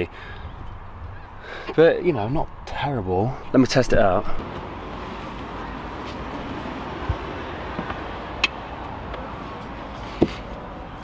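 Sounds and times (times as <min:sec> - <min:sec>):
steady background noise: 0:00.0 - 0:11.0
rustling and shuffling: 0:04.3 - 0:08.1, 0:09.1 - 0:11.0.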